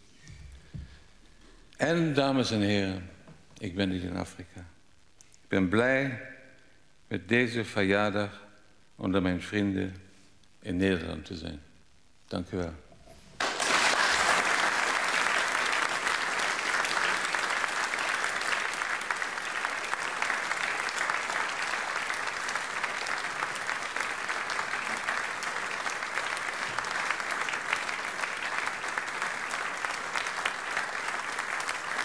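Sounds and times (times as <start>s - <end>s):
audience applauding: 13.4s - 32.0s.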